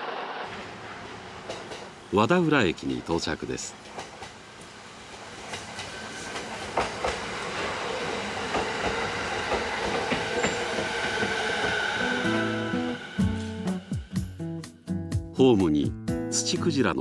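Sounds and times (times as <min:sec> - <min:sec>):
electric train pulling in: 0:00.0 - 0:14.6
high train whine: 0:00.0 - 0:14.6
wheels clicking over rail joints: 0:05.4 - 0:11.8.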